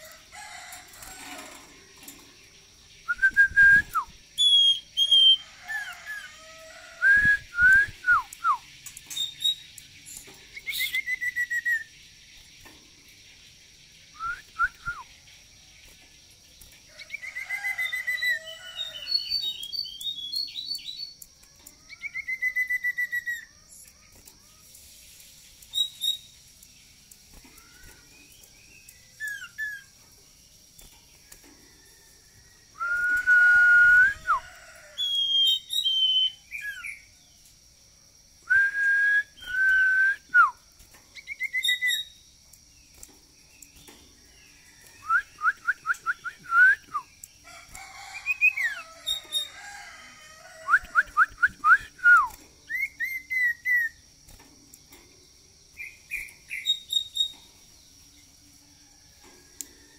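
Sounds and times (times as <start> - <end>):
bird rattling runs: 0.0 - 2.4
bird whistled notes: 3.0 - 6.3, 7.0 - 11.9, 14.1 - 15.1, 21.9 - 23.9, 25.7 - 26.4, 32.8 - 37.0, 41.2 - 42.2.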